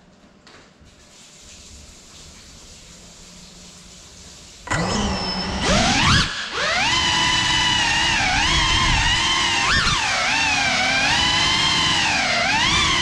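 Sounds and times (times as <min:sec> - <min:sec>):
drone motors whining: 0:04.7 - 0:13.0.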